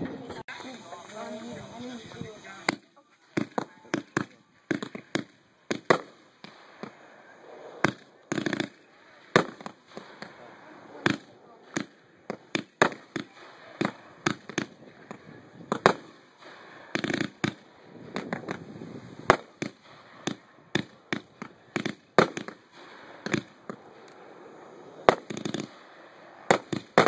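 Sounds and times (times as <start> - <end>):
crackling firework reports: 0.2 - 27.0
firework shells bursting: 0.6 - 27.0.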